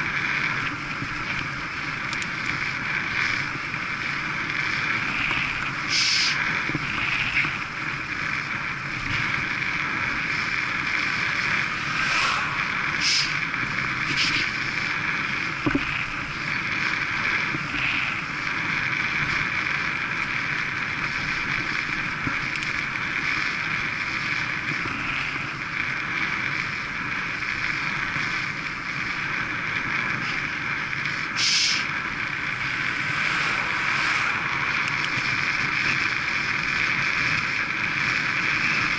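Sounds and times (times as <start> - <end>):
wind rushing over microphone: 0.0 - 19.8, 29.6 - 38.9
bike tyres humming on tarmac: 0.0 - 38.9.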